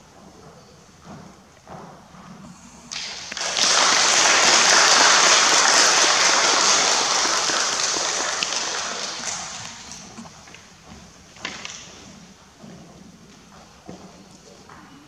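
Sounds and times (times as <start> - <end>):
audience applauding: 2.9 - 10.6.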